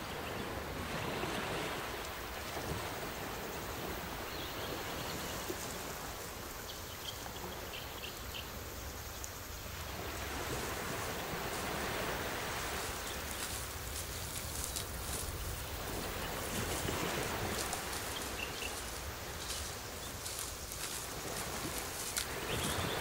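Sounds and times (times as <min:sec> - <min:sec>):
surf on beach: 0:00.0 - 0:23.0
wind buffeting microphone: 0:09.6 - 0:23.0.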